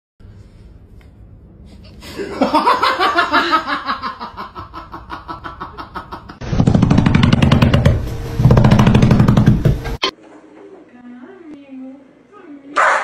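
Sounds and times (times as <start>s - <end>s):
person laughing: 2.1s - 6.4s.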